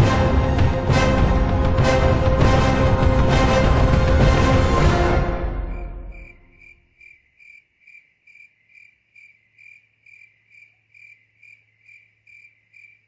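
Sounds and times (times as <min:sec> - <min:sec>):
cricket chirping: 0:05.6 - 0:13.0.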